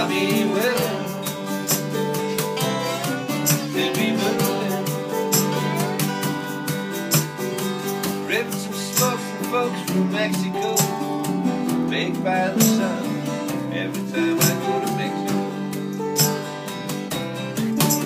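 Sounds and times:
harmonica bending notes: 0:00.0 - 0:08.3
acoustic guitars strumming: 0:00.0 - 0:18.0
small strummed string instrument: 0:00.0 - 0:18.0.

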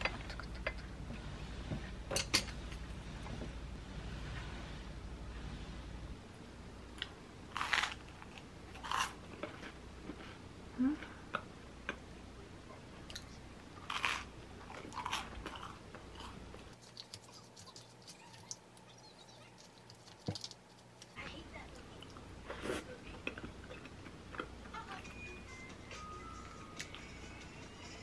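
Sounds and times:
chewing: 0:13.1 - 0:24.8.

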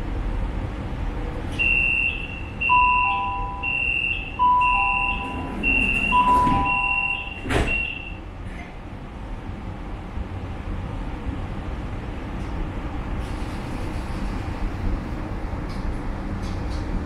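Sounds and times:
high electronic beeps: 0:01.6 - 0:08.2
train doors knocking shut: 0:05.0 - 0:08.8.

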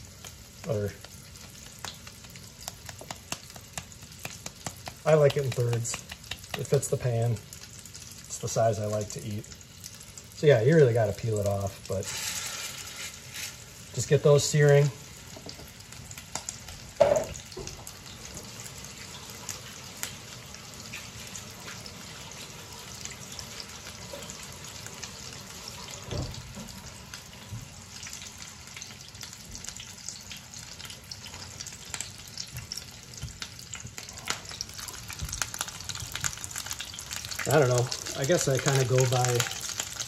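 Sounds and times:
patties sizzling in oil: 0:00.0 - 0:40.0.

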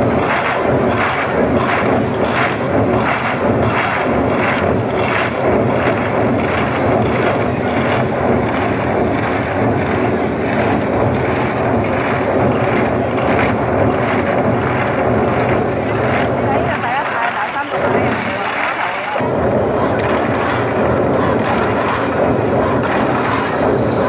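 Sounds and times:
massed drumming: 0:00.0 - 0:24.0.

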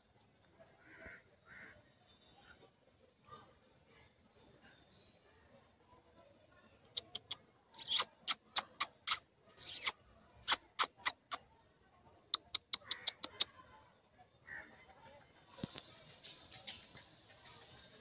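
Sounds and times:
monkey squeaking: 0:07.0 - 0:11.4, 0:12.4 - 0:13.4.

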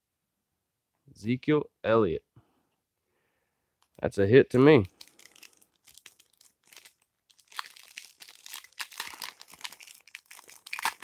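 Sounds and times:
foil wrapper crinkling: 0:04.9 - 0:11.0.

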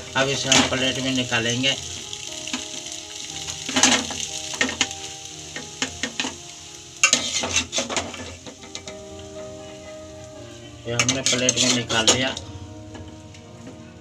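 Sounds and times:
metal spoon scraping metal pot: 0:11.0 - 0:12.3.

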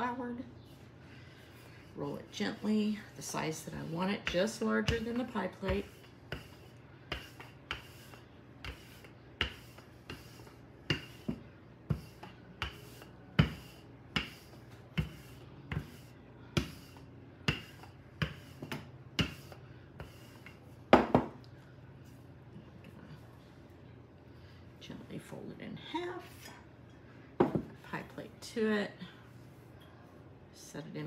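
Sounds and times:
rolling pin rolling dough: 0:00.0 - 0:21.3.

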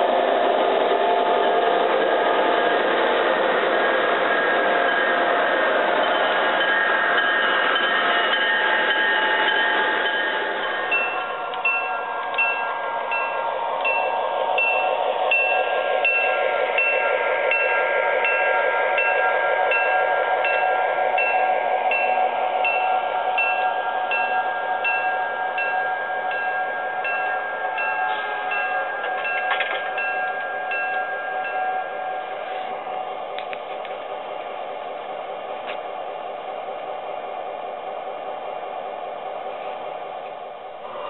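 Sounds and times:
model train whine: 0:00.0 - 0:41.0
bell dinging: 0:06.0 - 0:31.9.

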